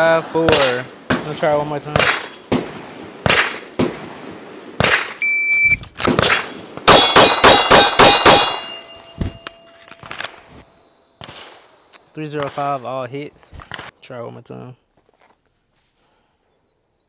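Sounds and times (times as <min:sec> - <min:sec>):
quieter single gunshots: 0:00.4 - 0:05.2, 0:06.0 - 0:09.4, 0:11.2 - 0:12.8
rapid pistol shots: 0:00.4 - 0:05.2, 0:06.0 - 0:08.7, 0:11.2 - 0:11.7
shot-timer beep: 0:05.2 - 0:05.8.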